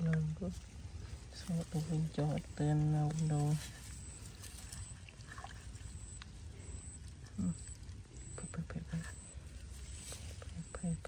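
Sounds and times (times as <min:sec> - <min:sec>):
steady low rumble: 0:00.0 - 0:11.0
hands squelching in wet mud: 0:01.5 - 0:07.2.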